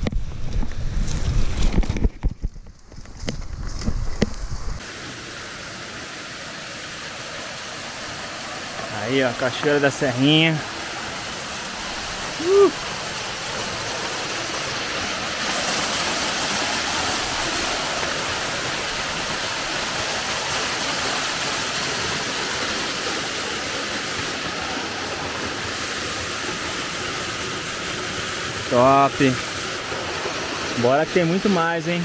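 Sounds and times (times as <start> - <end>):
waterfall pouring into pool: 4.8 - 32.0
brief vocal sound: 12.4 - 12.8.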